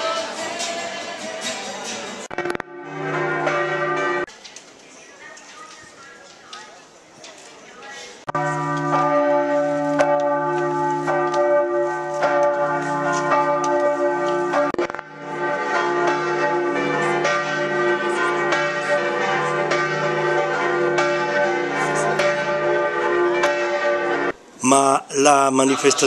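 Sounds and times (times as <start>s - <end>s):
church bells pealing: 2.4s - 4.3s, 8.3s - 24.4s.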